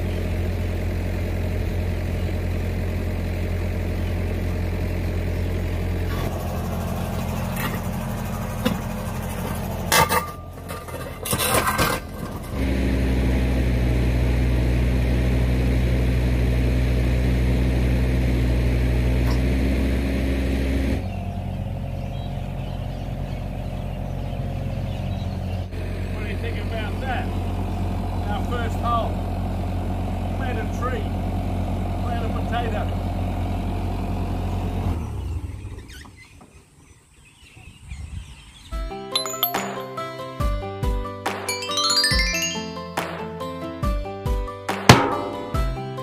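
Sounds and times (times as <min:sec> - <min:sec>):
diesel engine running: 0:00.0 - 0:35.7.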